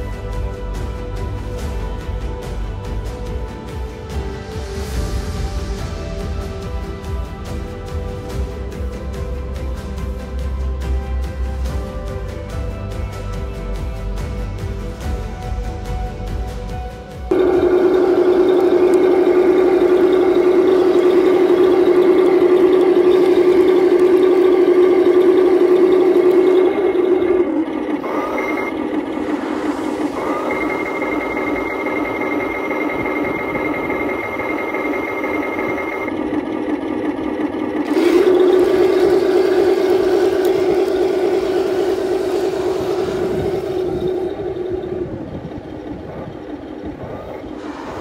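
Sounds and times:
higher whine: 0.0s - 48.0s
toy tank mechanical whine: 17.3s - 48.0s.

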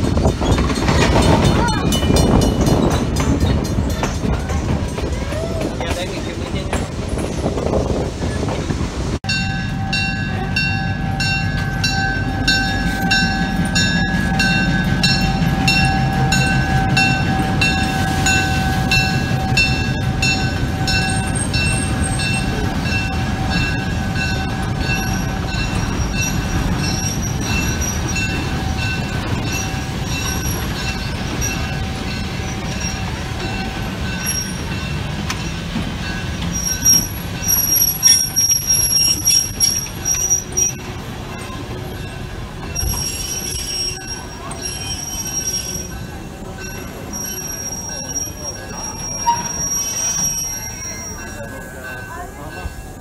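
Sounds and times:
wheels clicking over rail joints: 0.0s - 8.6s
freight cars rumbling: 0.0s - 53.0s
high wheel squeal: 9.8s - 35.0s, 36.4s - 52.2s.

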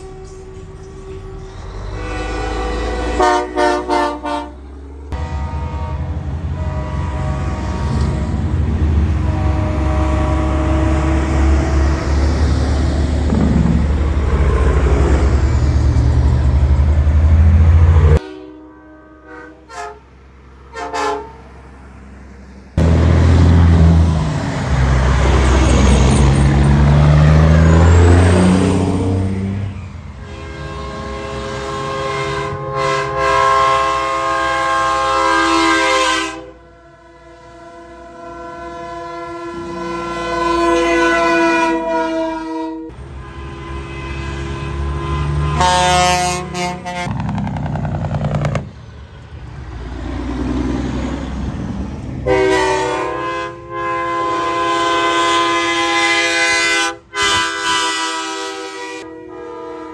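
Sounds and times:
truck air horns blowing: 0.0s - 12.3s, 17.0s - 21.6s, 27.4s - 48.8s, 52.2s - 59.9s
truck diesel engines passing: 0.0s - 59.9s.

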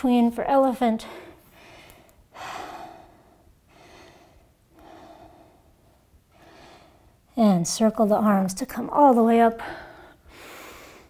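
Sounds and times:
woman breathing: 1.0s - 7.3s, 9.6s - 11.0s.

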